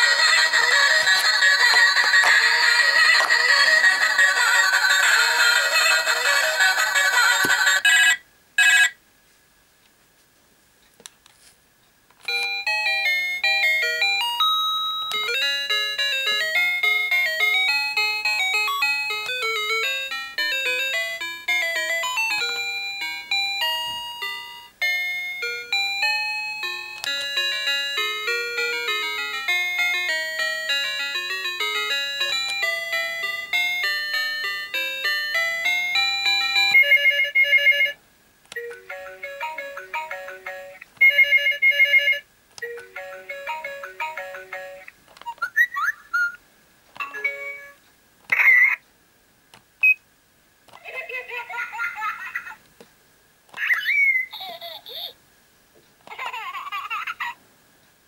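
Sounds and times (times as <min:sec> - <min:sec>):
toy phone electronic melody: 0:00.0 - 0:09.0, 0:12.2 - 0:46.4, 0:47.0 - 0:47.8.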